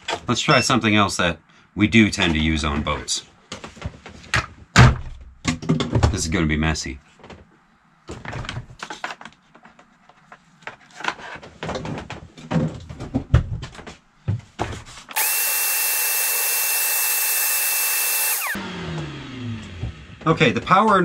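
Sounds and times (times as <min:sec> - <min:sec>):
shop vacuum running: 0:15.1 - 0:20.2.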